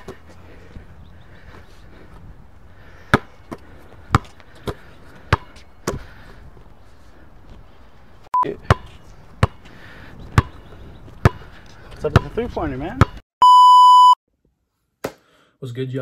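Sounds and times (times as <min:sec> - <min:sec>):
basketball bouncing on hard court: 0:03.1 - 0:06.0, 0:08.7 - 0:09.6, 0:10.3 - 0:10.6, 0:11.2 - 0:11.5, 0:12.1 - 0:13.2
short beep: 0:13.4 - 0:14.2.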